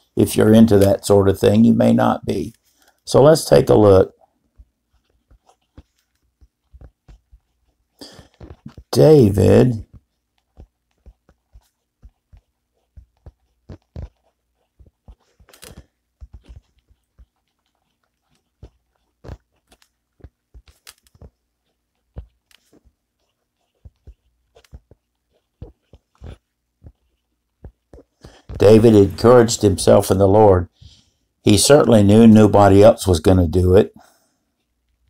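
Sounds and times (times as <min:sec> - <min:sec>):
fountain pen scratching paper: 0:03.7 - 0:29.4.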